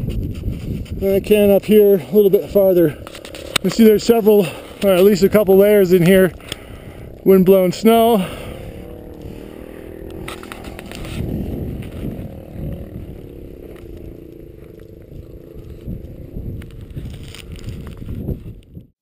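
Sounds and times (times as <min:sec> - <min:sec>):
wind on microphone: 0:00.0 - 0:18.9
small engine running: 0:00.7 - 0:18.8.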